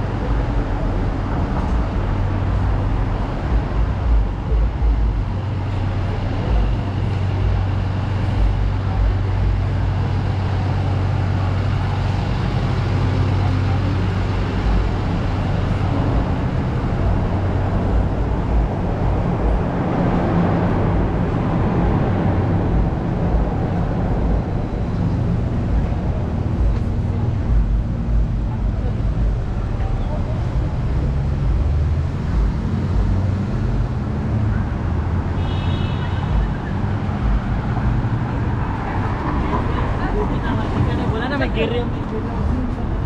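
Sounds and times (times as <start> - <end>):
low engine drone: 0.0 - 43.0
traffic noise: 0.0 - 43.0
vehicle passing: 36.0 - 43.0.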